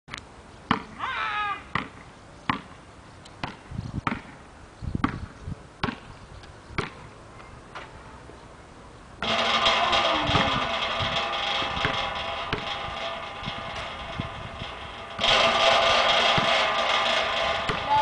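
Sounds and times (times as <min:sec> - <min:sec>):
basketball bouncing on pavement: 0:01.7 - 0:02.8, 0:03.4 - 0:04.4, 0:05.0 - 0:06.1, 0:06.8 - 0:07.0.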